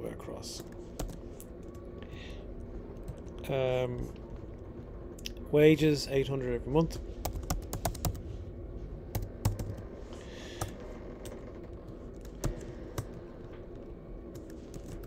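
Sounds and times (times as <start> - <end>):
keyboard typing clicks: 9.2 - 9.8.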